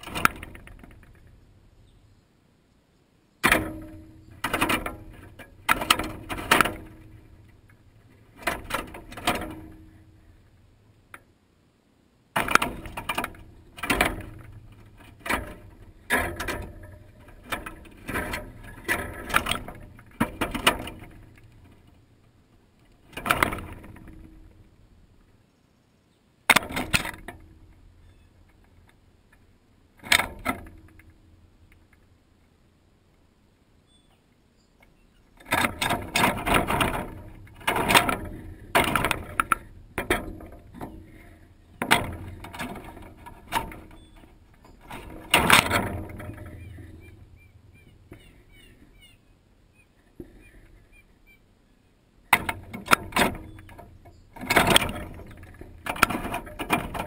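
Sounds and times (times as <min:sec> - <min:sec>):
peanuts rattling against wire feeder: 0:12.4 - 0:22.1, 0:35.4 - 0:48.2, 0:52.3 - 0:57.0.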